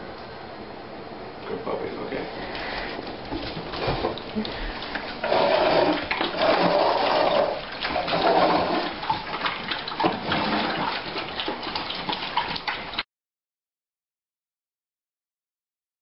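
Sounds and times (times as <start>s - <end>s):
dogs chewing food: 2.4s - 13.0s.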